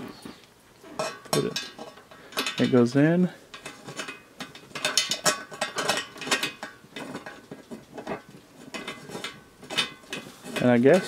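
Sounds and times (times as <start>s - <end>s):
metal lock clicking and scraping: 3.6s - 11.0s.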